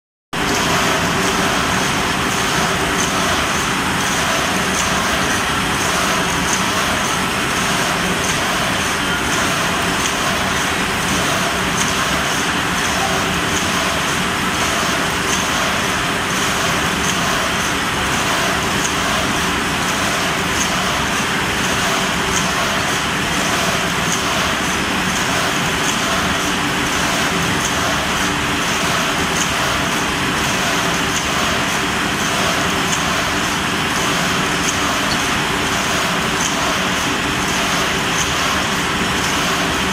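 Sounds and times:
printing machine running: 0:00.4 - 0:39.9.

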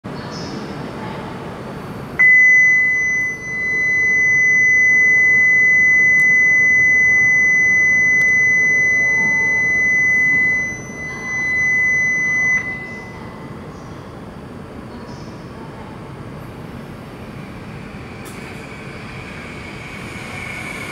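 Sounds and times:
high-pitched warning buzzer: 0:02.2 - 0:13.2
train rumble: 0:13.3 - 0:20.9.

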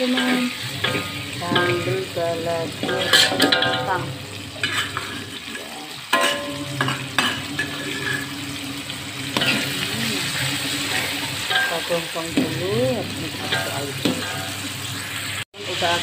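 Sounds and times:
spatula scraping a pan: 0:00.0 - 0:15.4
paste sizzling in oil: 0:00.0 - 0:16.0.

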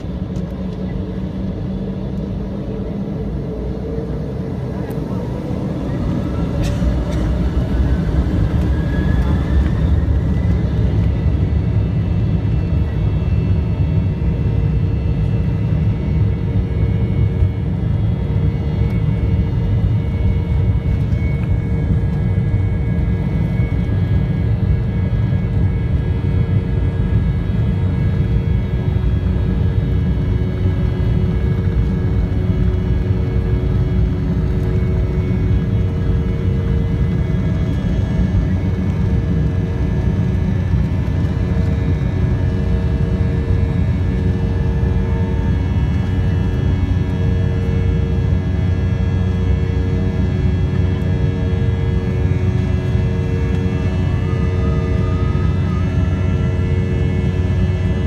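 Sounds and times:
jet engines spooling up: 0:00.0 - 0:13.5.

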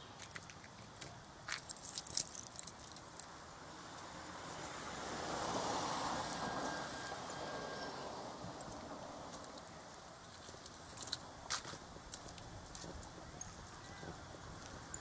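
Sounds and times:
car passing by: 0:03.5 - 0:10.0.

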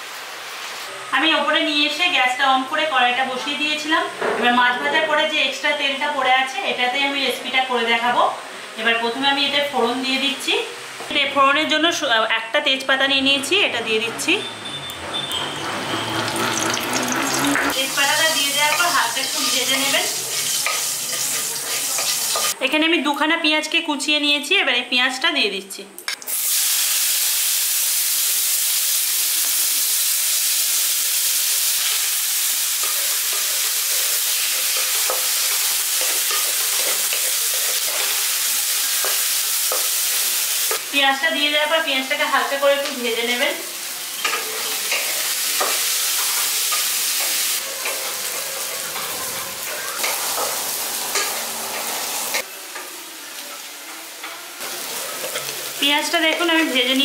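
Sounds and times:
onions sizzling in hot oil: 0:00.0 - 0:02.4, 0:14.7 - 0:22.6, 0:26.2 - 0:57.0
spatula scraping a pan: 0:18.4 - 0:22.6, 0:32.8 - 0:38.2, 0:44.2 - 0:52.4.

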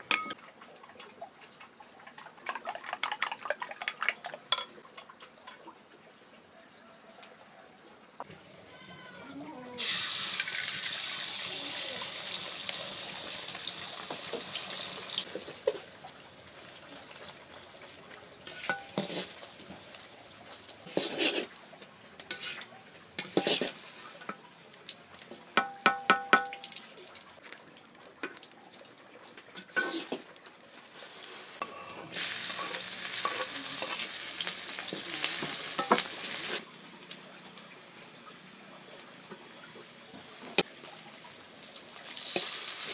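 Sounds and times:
ringing taps on a wok: 0:00.0 - 0:00.4, 0:25.6 - 0:26.8
shallots sizzling in oil: 0:08.0 - 0:28.6, 0:29.3 - 0:42.9
egg sizzling in hot oil: 0:09.8 - 0:42.9
metal ladle scraping a wok: 0:18.4 - 0:19.4, 0:20.8 - 0:21.5, 0:22.2 - 0:24.4, 0:29.6 - 0:30.3.

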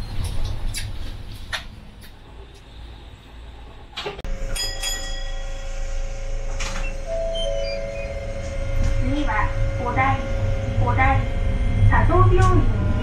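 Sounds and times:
tram electric drive whining: 0:00.0 - 0:13.0
low hum: 0:02.1 - 0:13.0
short high tones: 0:04.6 - 0:13.0.

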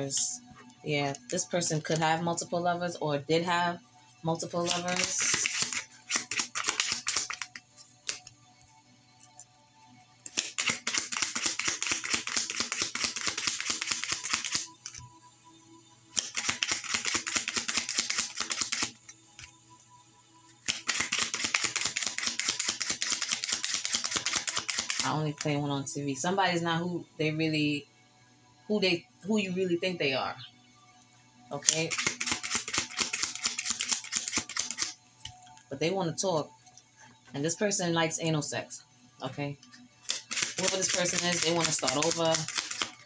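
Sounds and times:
soft background music: 0:00.0 - 0:43.0
cards being shuffled: 0:04.6 - 0:08.3, 0:10.3 - 0:15.0, 0:16.2 - 0:19.0, 0:20.7 - 0:25.0, 0:31.6 - 0:34.9, 0:40.0 - 0:43.0.

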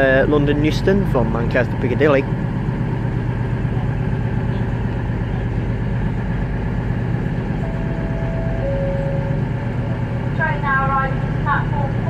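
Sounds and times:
train diesel engines idling: 0:00.0 - 0:12.0
two-note falling tone: 0:07.6 - 0:10.5.

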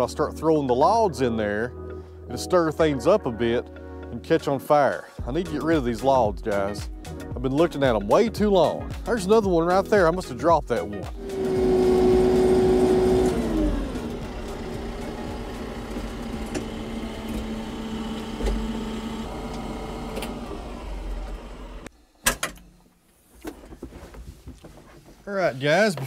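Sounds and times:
tractor diesel engine: 0:11.1 - 0:21.9.

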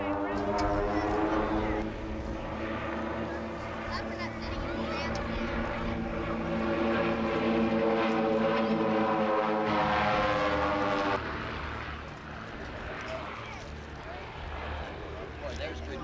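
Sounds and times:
propeller planes droning overhead: 0:00.0 - 0:16.0.

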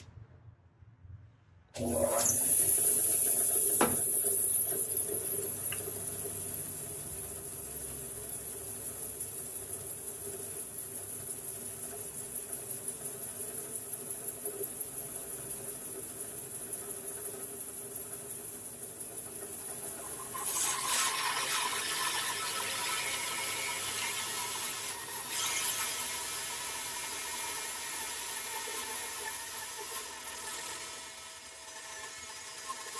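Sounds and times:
bandsaw running: 0:01.8 - 0:11.5, 0:18.7 - 0:32.9
bandsaw blade cutting wood: 0:20.0 - 0:32.9.

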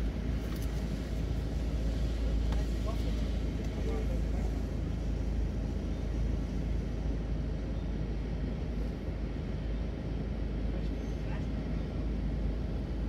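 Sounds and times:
car engine idling: 0:00.0 - 0:08.3.

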